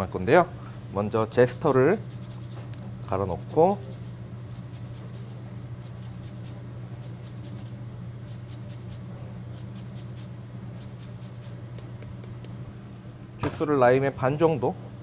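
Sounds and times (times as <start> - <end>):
zester scratching rind: 2.0 - 11.6.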